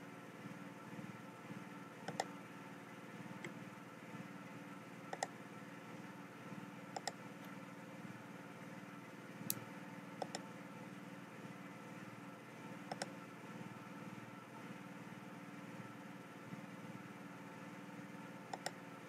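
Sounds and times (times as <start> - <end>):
low computer hum: 0.0 - 19.0
computer mouse clicks: 2.1 - 2.3, 5.1 - 5.3, 7.0 - 7.2, 10.2 - 10.4, 12.9 - 13.1, 18.5 - 18.8.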